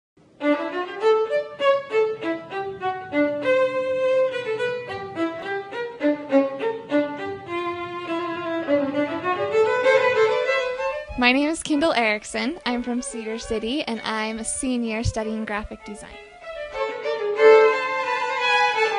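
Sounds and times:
violin duet: 0.2s - 18.9s.

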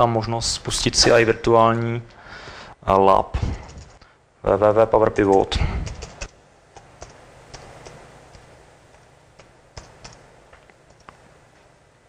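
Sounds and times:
laptop keyboard keystrokes: 5.3s - 10.2s, 10.8s - 11.2s.

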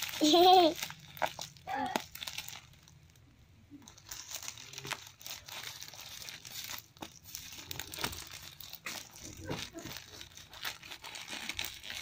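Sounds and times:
plastic mailer crinkling: 0.0s - 3.0s, 3.8s - 12.0s.

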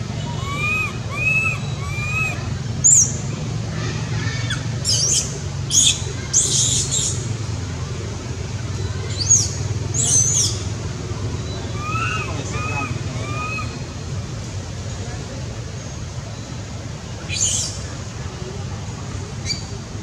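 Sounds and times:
baby monkey cooing: 0.3s - 2.5s, 11.7s - 13.7s
baby monkey squealing: 0.3s - 3.1s, 11.8s - 13.8s.

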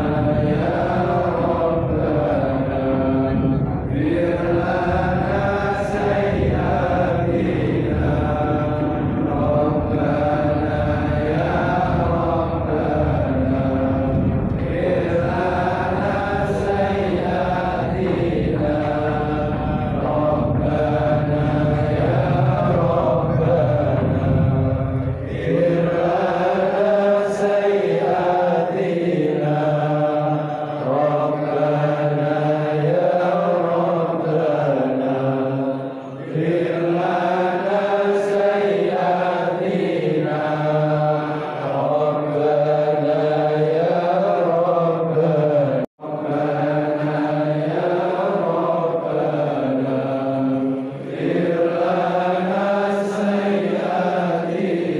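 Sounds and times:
men chanting in unison: 0.0s - 54.9s.

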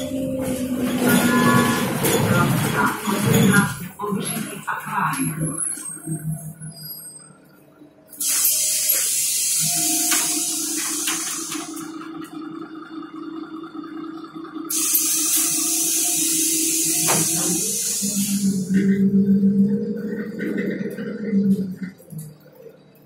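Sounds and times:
low bus hum: 0.0s - 23.0s
compressed-air hiss of bus doors: 8.2s - 11.8s, 14.7s - 18.6s.

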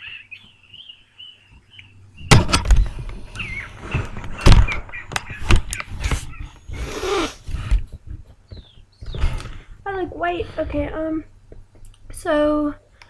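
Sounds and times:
rubbing on laptop: 3.4s - 9.4s.

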